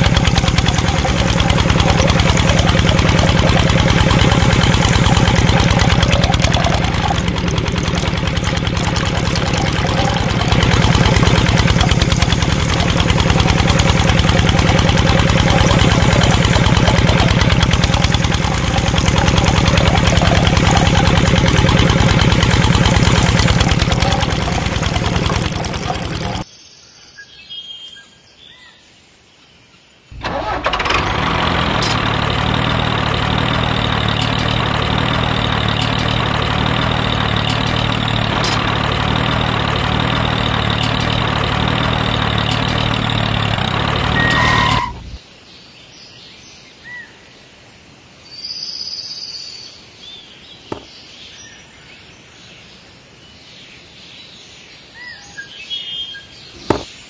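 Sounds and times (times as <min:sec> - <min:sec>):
tractor engine running: 0:00.0 - 0:26.4, 0:30.1 - 0:45.2, 0:50.6 - 0:50.9, 0:56.6 - 0:56.9.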